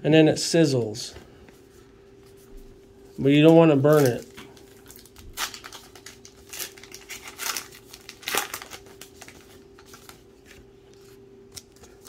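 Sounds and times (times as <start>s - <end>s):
faint steady hum: 0.0s - 12.0s
trading cards flicking and rustling: 3.3s - 12.0s.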